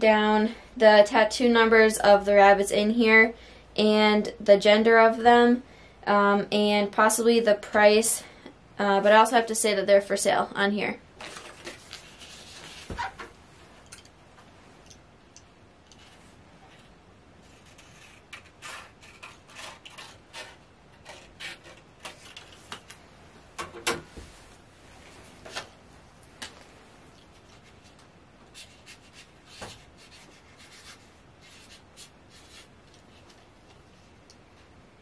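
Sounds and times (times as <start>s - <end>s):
marker scratching on card: 16.0s - 21.8s, 28.5s - 33.4s.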